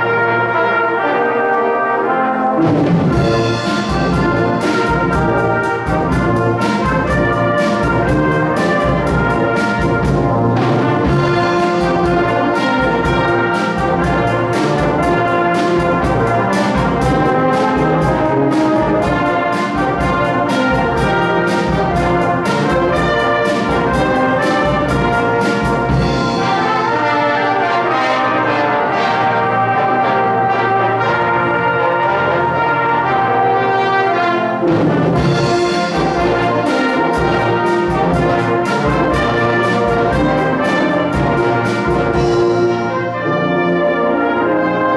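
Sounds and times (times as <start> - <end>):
brass band playing: 0.0 - 44.9
drum kit beat: 2.8 - 27.0, 34.8 - 43.0.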